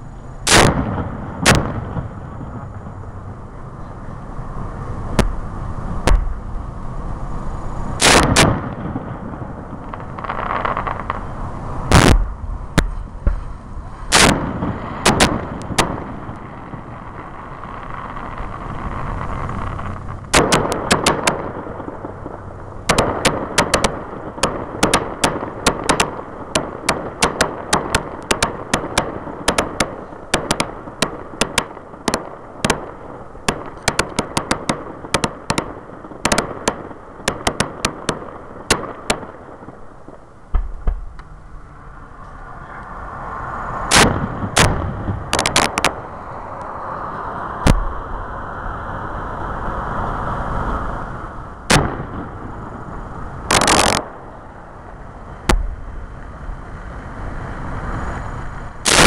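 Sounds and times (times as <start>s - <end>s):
rapid crackling pops: 0.0s - 3.0s, 8.0s - 41.3s, 43.9s - 46.7s, 51.7s - 56.3s
firework shell bursts: 0.4s - 2.9s, 7.9s - 39.8s, 43.8s - 46.1s, 53.5s - 54.4s.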